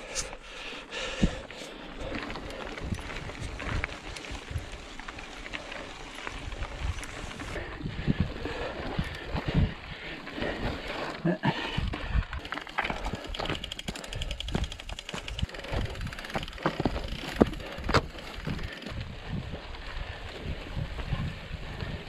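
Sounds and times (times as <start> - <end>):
rapid even ticking from bike: 0.4 - 22.0
mountain bike rattling over bumps: 0.9 - 22.0
tyre noise: 1.0 - 22.0
wind rumble on microphone: 2.1 - 10.8, 14.2 - 22.0.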